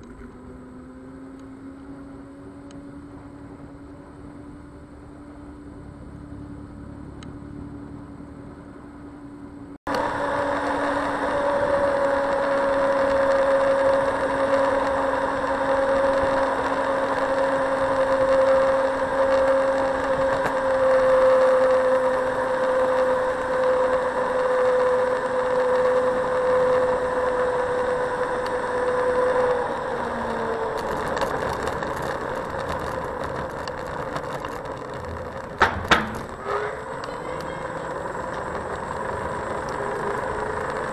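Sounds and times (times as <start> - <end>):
electric scooter motor whine: 0.0 - 40.9
wind and road noise: 0.0 - 40.9
clicking and rattling on paving: 11.0 - 40.9.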